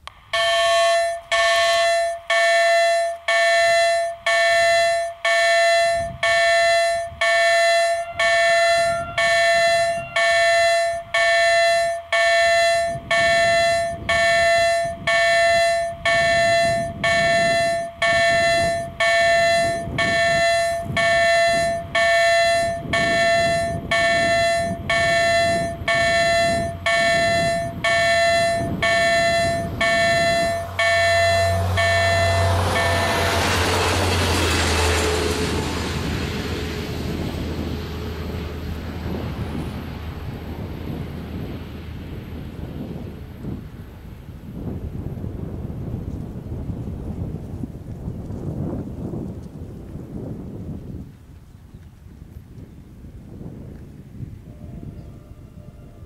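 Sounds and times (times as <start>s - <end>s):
electronic warning bell ringing: 0.0s - 35.7s
low rumble: 0.0s - 50.9s.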